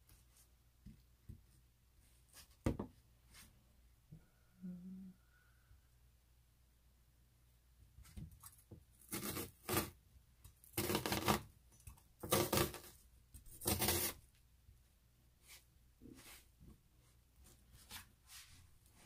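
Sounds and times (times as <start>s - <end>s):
knife slicing onion on cutting mat: 8.0s - 10.0s, 10.7s - 11.5s, 12.2s - 14.2s.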